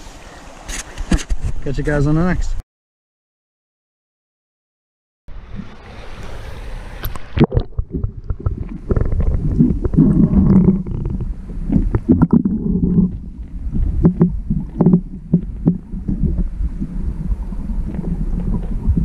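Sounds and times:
muffled underwater stream gurgling: 5.4s - 19.0s.

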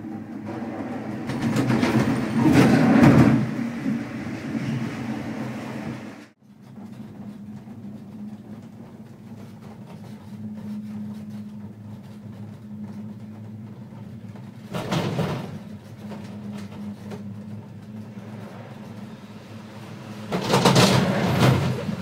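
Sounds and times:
gondola cabin humming and rattling: 0.0s - 22.0s
cabin clattering rush: 0.4s - 4.3s, 14.6s - 19.0s, 20.2s - 22.0s.

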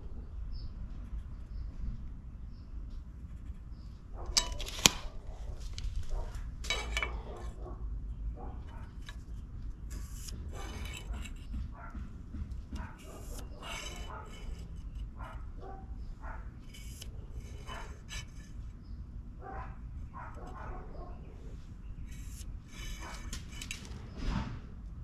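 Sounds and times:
dog barking: 4.1s - 6.5s, 7.1s - 9.0s, 10.5s - 12.1s, 12.7s - 14.5s, 15.2s - 16.6s, 17.6s - 18.0s, 19.4s - 21.5s
steel scribe scraping metal: 4.3s - 7.6s, 8.6s - 11.6s, 12.7s - 18.9s, 21.4s - 24.2s.

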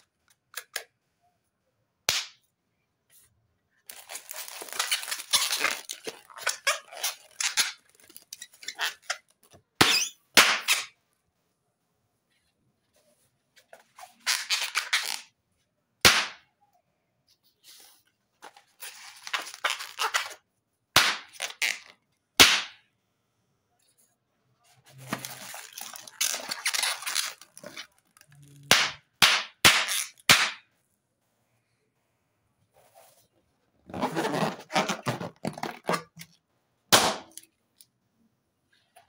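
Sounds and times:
balloons popping: 3.9s - 11.0s, 16.0s - 16.4s, 21.0s - 22.8s, 25.1s - 30.7s, 33.9s - 36.3s
rubber rubbing: 3.9s - 11.0s, 32.7s - 36.3s.

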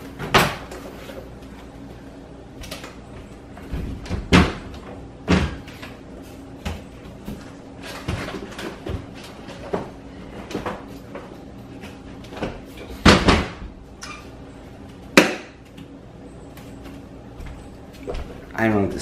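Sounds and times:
cupboard doors knocking and clunking: 3.6s - 5.7s, 12.4s - 13.7s.

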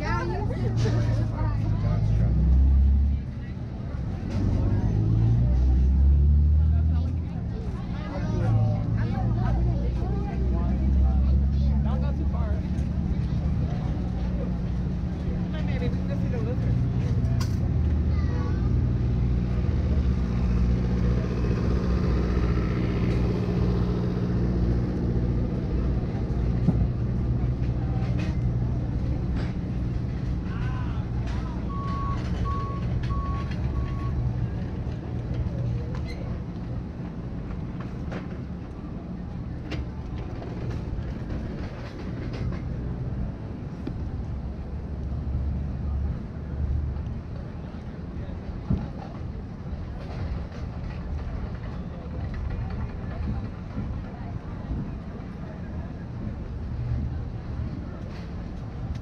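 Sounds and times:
vehicle engine running: 0.0s - 59.0s.

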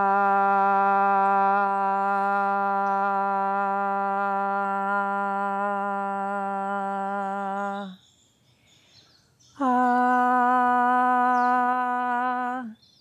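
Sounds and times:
woman singing ahh: 0.0s - 8.0s, 9.6s - 12.8s
faint bird chirps: 7.4s - 10.4s, 11.0s - 13.0s.

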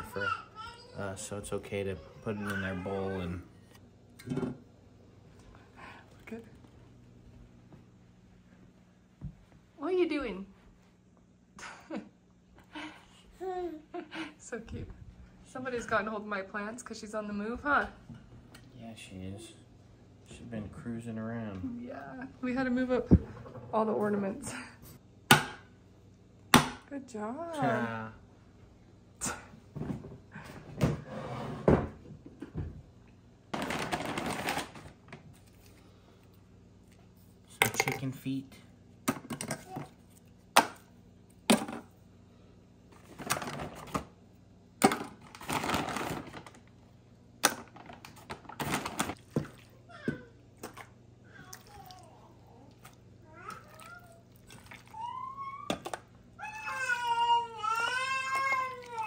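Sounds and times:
paper bag rustling: 33.6s - 35.6s, 45.4s - 46.6s.

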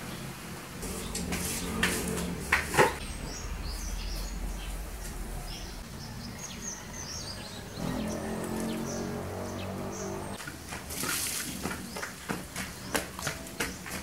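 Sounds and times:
birds chirping: 0.0s - 14.0s
scraping on tiled floor: 0.8s - 3.0s.

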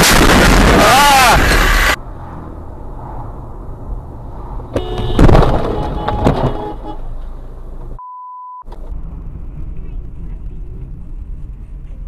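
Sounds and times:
car interior road noise: 0.4s - 12.0s
car passing close: 1.8s - 4.8s
car horn honking: 4.8s - 7.2s
steady beep: 8.0s - 8.7s.

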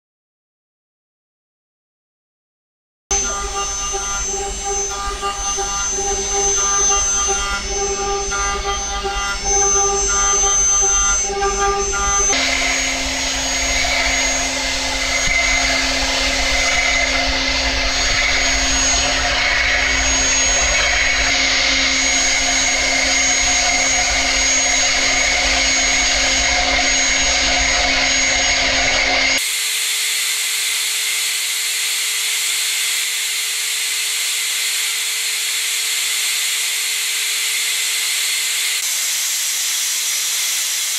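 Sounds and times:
spindle whine: 3.1s - 29.4s
metal cutting noise: 3.1s - 40.9s.

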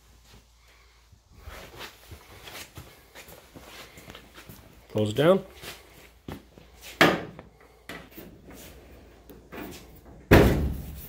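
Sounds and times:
car hood slamming: 10.3s - 10.9s.

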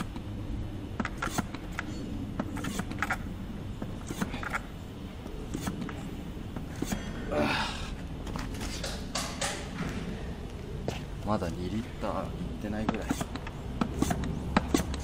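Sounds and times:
hand pump plunger strokes: 12.9s - 15.0s.

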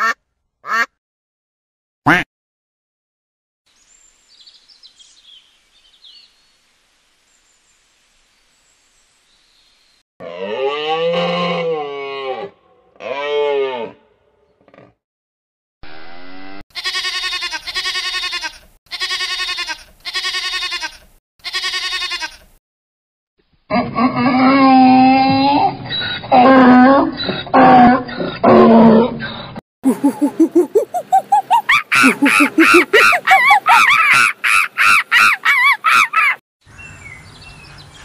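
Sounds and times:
sheep bleating: 16.7s - 22.5s
calf bawling: 29.9s - 36.4s.

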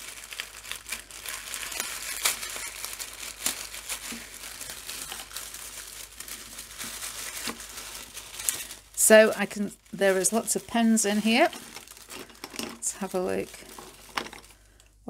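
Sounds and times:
tissue paper crinkling: 0.0s - 14.8s.

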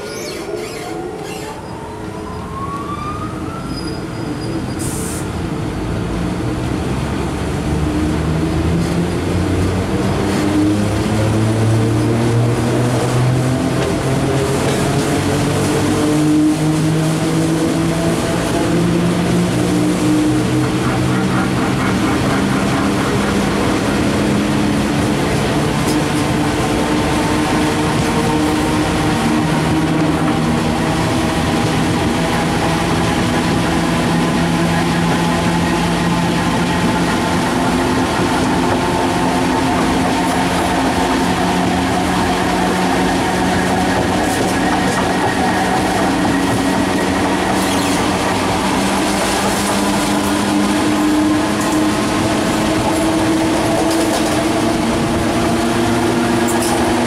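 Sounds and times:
traction motors whining: 0.0s - 2.6s.

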